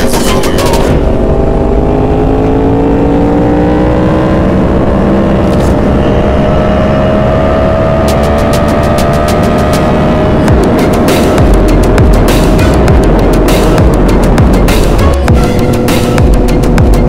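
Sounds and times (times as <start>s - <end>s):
electronic music beats: 0.0s - 1.6s, 7.9s - 17.0s
motorcycle engine accelerating: 0.0s - 17.0s.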